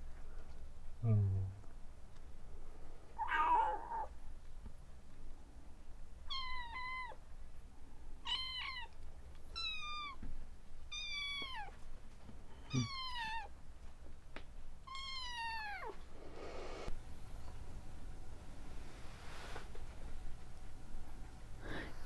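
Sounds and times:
kitten meowing: 3.2 - 4.1, 8.2 - 10.2, 12.7 - 13.5.

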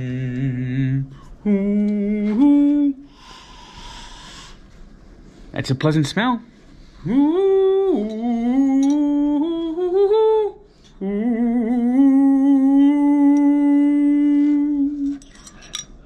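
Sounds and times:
man humming: 0.0 - 4.2, 7.0 - 15.2.

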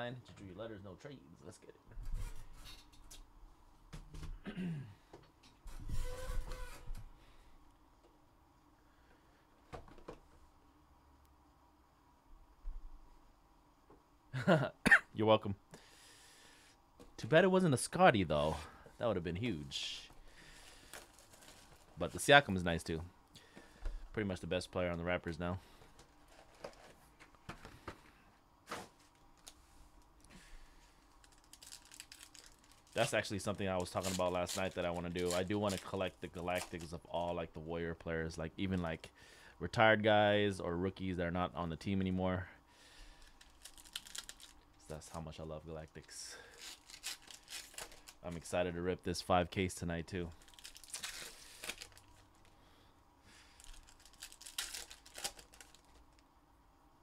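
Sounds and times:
card packs clicking and rustling: 20.6 - 22.3, 31.2 - 37.4, 43.2 - 44.6, 46.5 - 48.5, 50.3 - 52.5, 53.5 - 56.2.

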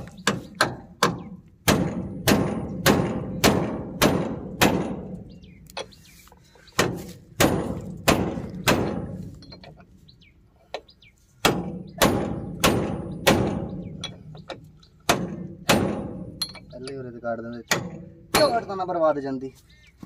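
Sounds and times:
hammer striking steel wrench: 16.4 - 17.0.

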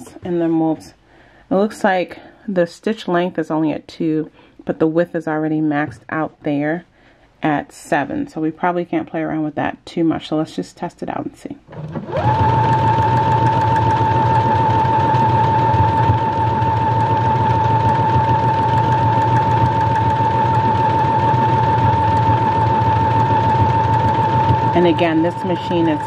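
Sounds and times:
sewing machine sewing: 11.7 - 26.0.

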